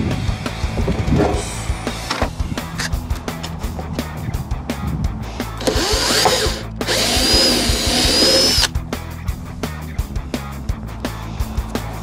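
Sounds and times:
cordless drill boring through plastic: 5.6 - 8.7.

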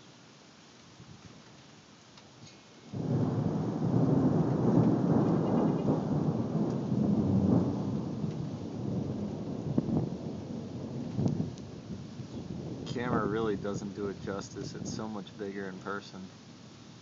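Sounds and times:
thunder rumbling: 2.9 - 16.4.

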